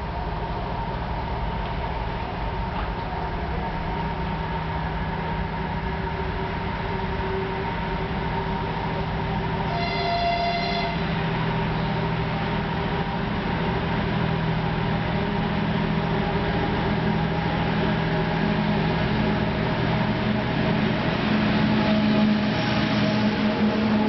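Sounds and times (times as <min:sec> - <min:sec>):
diesel locomotive engine drone: 0:00.0 - 0:24.0
locomotive horn blast: 0:09.7 - 0:11.2.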